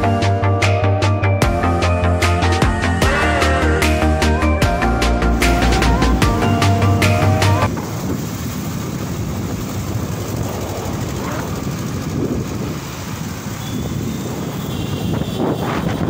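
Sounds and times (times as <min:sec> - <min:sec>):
road and traffic noise: 0:03.9 - 0:16.0
wind buffeting microphone: 0:07.7 - 0:16.0.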